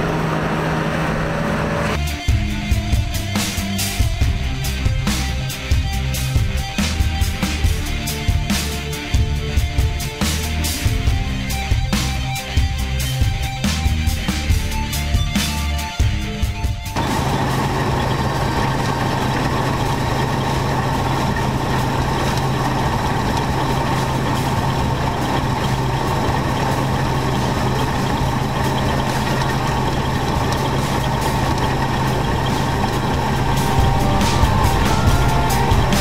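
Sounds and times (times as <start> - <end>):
combine harvester running: 0.0 - 2.0, 17.0 - 36.0.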